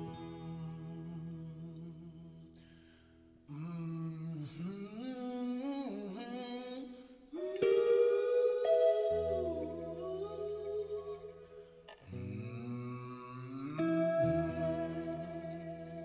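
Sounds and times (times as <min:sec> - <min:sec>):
hummed melody: 0:07.4 - 0:16.0.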